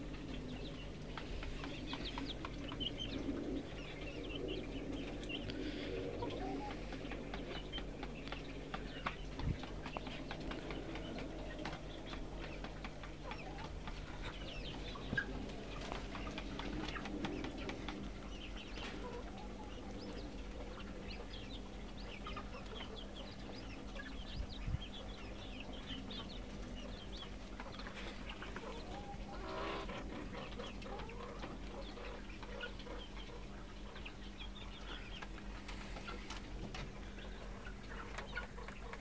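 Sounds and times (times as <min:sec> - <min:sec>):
chickens clucking: 0:00.0 - 0:39.0
small birds chirping: 0:00.0 - 0:39.0.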